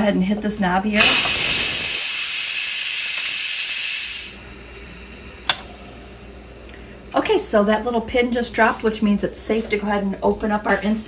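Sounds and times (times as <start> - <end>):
steam venting hiss: 1.0 - 5.6.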